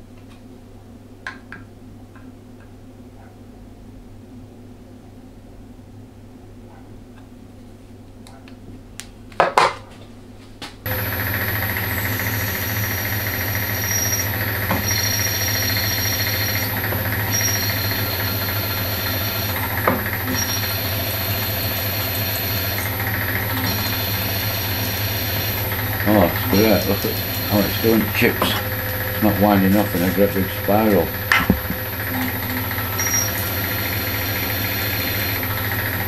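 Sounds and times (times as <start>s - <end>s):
drill cutting metal: 10.9s - 36.0s
drill humming and whining: 10.9s - 36.0s.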